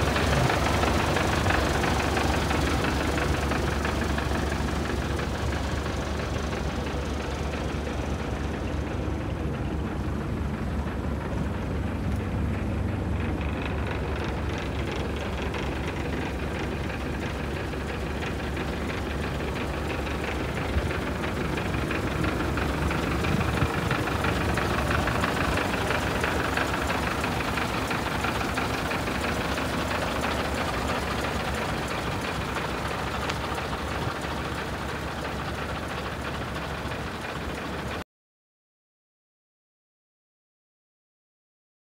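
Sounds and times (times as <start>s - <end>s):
diesel truck engine idling: 0.0s - 38.0s.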